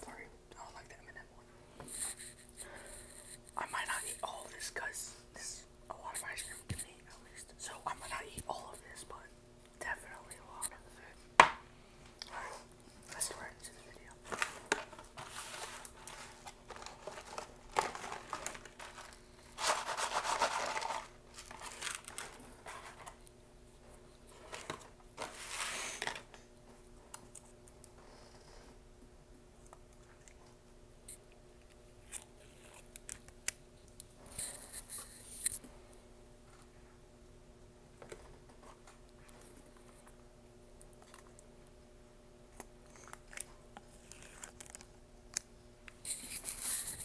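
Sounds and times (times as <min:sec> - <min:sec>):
food packaging crinkling and tearing: 0:14.2 - 0:23.2, 0:42.9 - 0:45.4.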